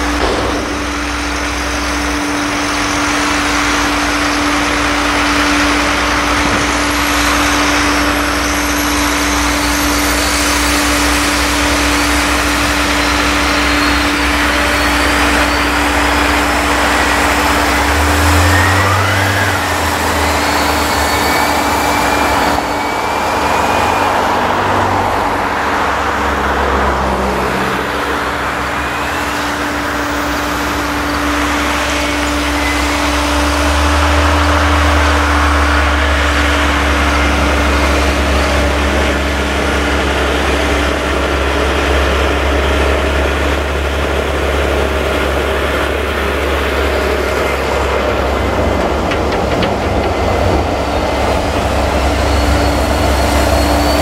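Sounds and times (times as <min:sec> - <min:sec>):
tractor engines running: 0:00.0 - 0:54.0
faint high whistles: 0:07.4 - 0:24.2, 0:30.8 - 0:39.2, 0:51.9 - 0:54.0.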